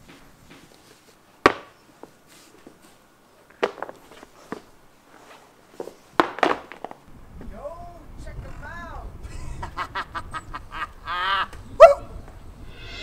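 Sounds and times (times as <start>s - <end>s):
sharp knocks on wood: 1.4s - 1.7s.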